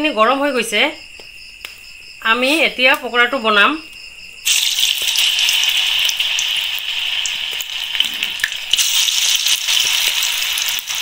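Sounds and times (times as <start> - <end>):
batter deep-frying in hot oil: 4.4 - 11.0
small pops and crackles: 4.5 - 6.6, 7.2 - 11.0.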